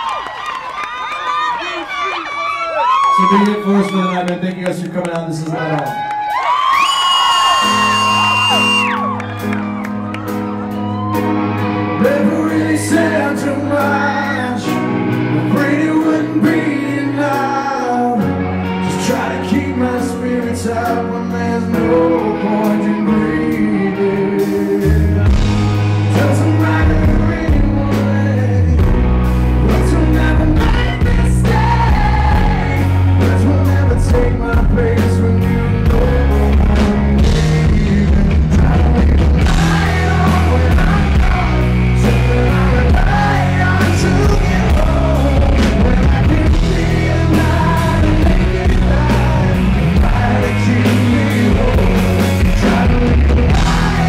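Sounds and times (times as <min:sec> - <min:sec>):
live rock band playing: 0:04.1 - 0:54.0
male lead singer: 0:10.8 - 0:54.0.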